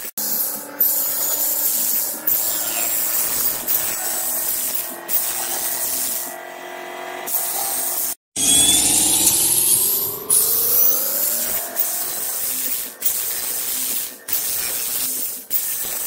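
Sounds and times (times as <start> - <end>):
drill bit cutting into wood: 0.1 - 6.4, 7.2 - 16.0
steady machine hum: 8.4 - 13.0.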